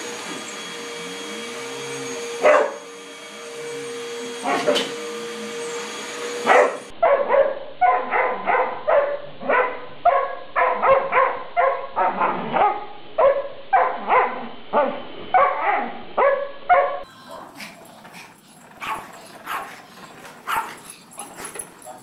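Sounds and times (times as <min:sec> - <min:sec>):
dog barking: 0:02.4 - 0:02.8, 0:04.4 - 0:04.9, 0:06.4 - 0:17.6, 0:18.8 - 0:19.8, 0:20.4 - 0:20.8.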